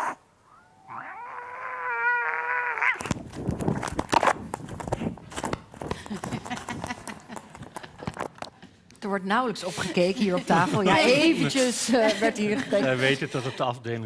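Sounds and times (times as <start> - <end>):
cat yowling: 0.0 - 3.1.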